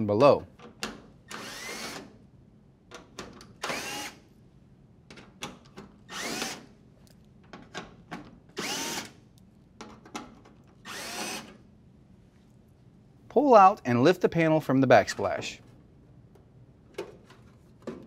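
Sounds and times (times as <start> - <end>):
cordless drill whirring: 1.3 - 2.1, 3.6 - 4.2, 6.1 - 6.7, 8.6 - 9.2, 10.8 - 11.6.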